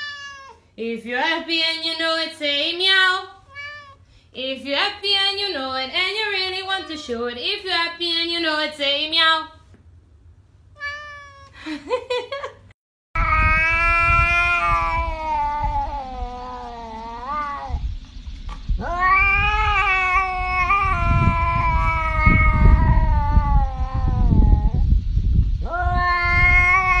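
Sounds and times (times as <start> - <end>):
cat yowling: 0.0 - 0.6, 3.4 - 4.0, 6.4 - 7.3, 10.8 - 11.6, 13.2 - 17.8, 18.8 - 24.8, 25.6 - 27.0.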